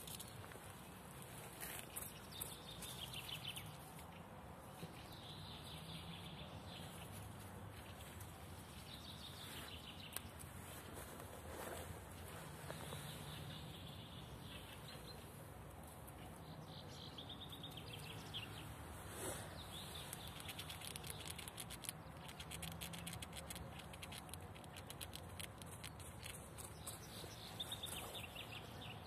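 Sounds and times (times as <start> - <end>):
small birds chirping: 0.0 - 29.0.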